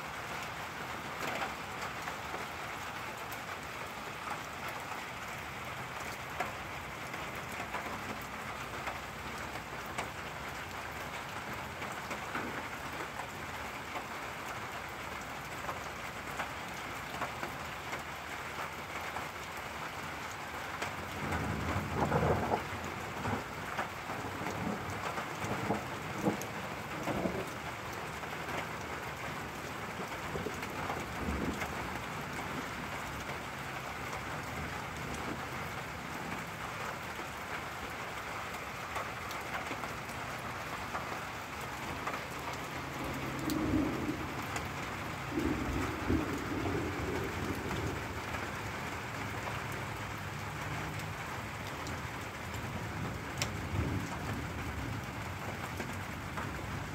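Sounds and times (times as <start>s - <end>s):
raindrops tapping: 0.0s - 56.9s
steady rain: 0.0s - 56.9s
thunder rumbling: 21.1s - 28.2s, 29.2s - 33.4s, 40.6s - 50.0s, 52.0s - 56.9s.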